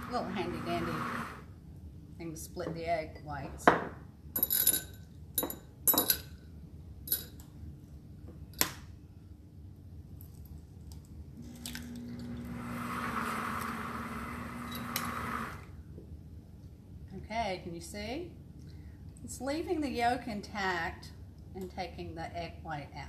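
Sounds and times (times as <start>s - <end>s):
blender motor running: 0.0s - 1.5s, 11.4s - 15.7s.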